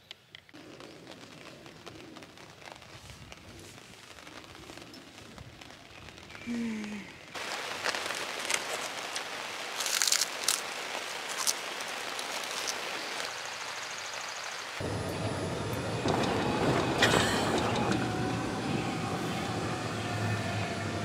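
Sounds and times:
light rain hiss: 0.0s - 21.0s
plastic bag crinkling: 0.6s - 6.5s, 7.4s - 13.3s
person humming: 6.4s - 7.2s.

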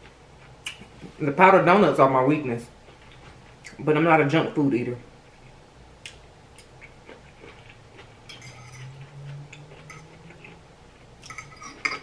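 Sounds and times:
person eating noodles: 6.6s - 12.0s
fork scraping a plate: 8.2s - 10.6s, 11.2s - 12.0s.

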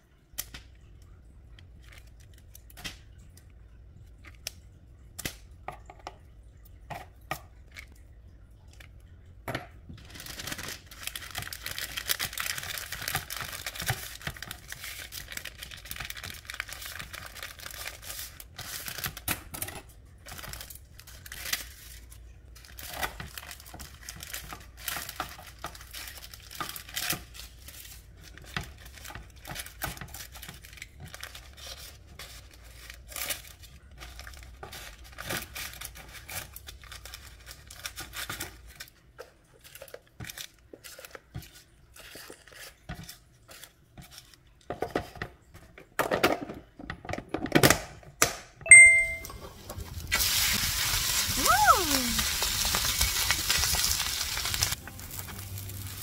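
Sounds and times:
baking paper rustling and crinkling: 1.6s - 3.3s, 9.9s - 45.9s, 49.6s - 56.0s.

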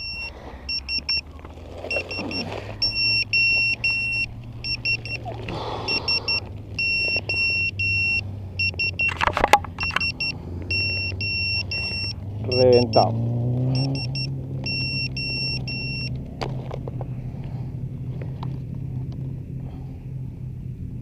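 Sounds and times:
low steady hum: 0.0s - 21.0s
high-pitched electronic buzzer beeping: 1.9s - 9.2s, 9.8s - 16.1s.

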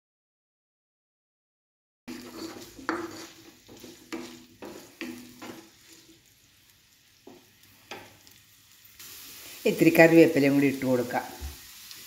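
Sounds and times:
wooden spatula scraping pan: 2.1s - 6.2s
onions sizzling in oil: 2.1s - 12.0s.

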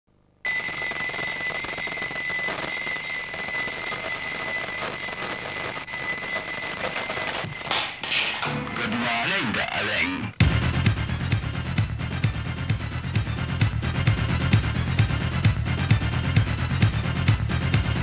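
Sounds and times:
alarm clock bells ringing: 0.5s - 9.5s.

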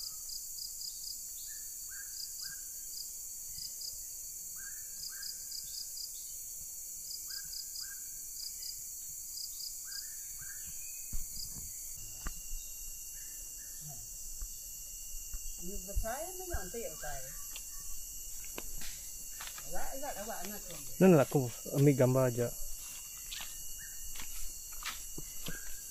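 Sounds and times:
high-pitched insect chorus: 0.0s - 25.9s
thump: 11.1s - 11.7s
bird calling: 15.6s - 21.8s, 25.2s - 25.9s.

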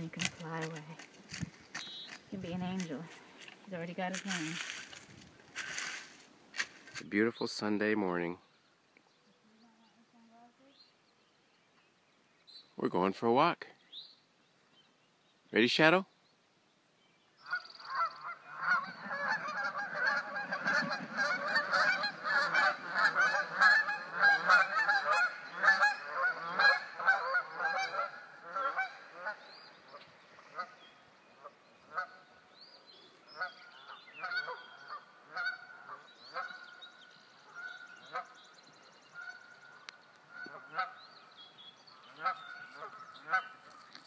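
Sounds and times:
geese honking: 17.4s - 32.4s, 33.4s - 38.4s, 39.1s - 41.1s, 41.9s - 44.0s.

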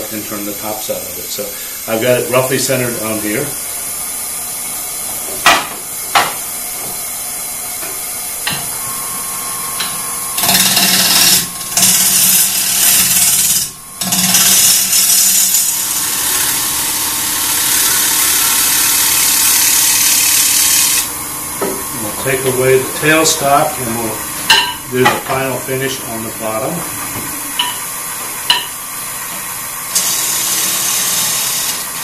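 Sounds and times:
lathe tool shaving wood: 9.7s - 29.1s, 29.8s - 32.0s.

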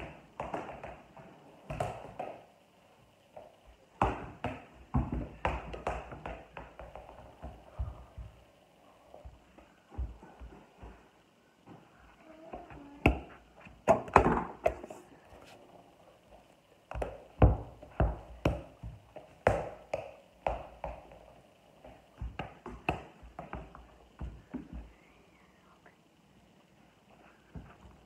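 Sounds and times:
ball and feet landing on floor: 0.0s - 2.4s, 3.4s - 8.4s, 9.2s - 11.0s, 13.0s - 14.9s, 16.9s - 24.9s
bare feet thudding on ball: 0.0s - 2.4s, 3.4s - 8.5s, 9.1s - 11.8s, 12.5s - 14.9s, 16.9s - 24.9s.

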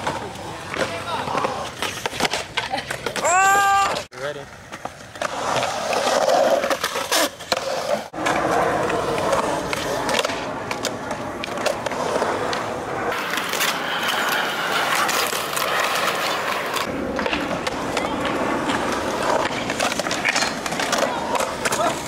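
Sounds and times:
skateboard wheels rolling on concrete: 0.0s - 22.0s
skateboard clacks: 6.7s - 22.0s.

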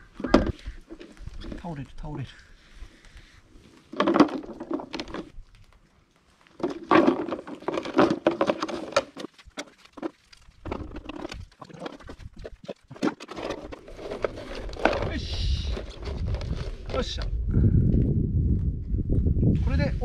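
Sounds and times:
twigs clicking against plastic bottles: 2.9s - 16.6s.

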